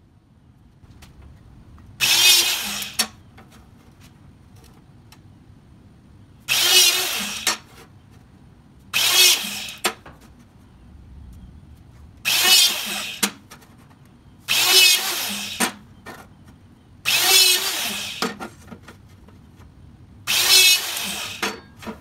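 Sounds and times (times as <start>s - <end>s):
hydraulic hole punch running: 2.0s - 3.1s, 14.5s - 15.8s, 17.1s - 18.4s, 20.3s - 21.6s.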